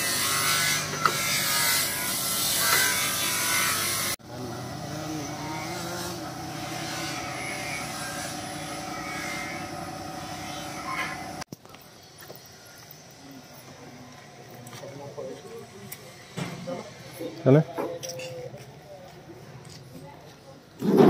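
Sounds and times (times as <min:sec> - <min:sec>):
workshop machinery hum: 0:00.0 - 0:17.6
power tool on metal hissing: 0:04.8 - 0:11.5.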